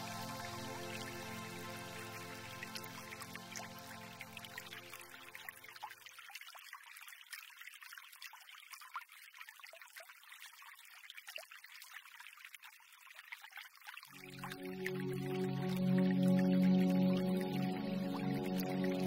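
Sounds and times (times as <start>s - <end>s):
background music: 0.0s - 5.5s, 14.1s - 19.0s.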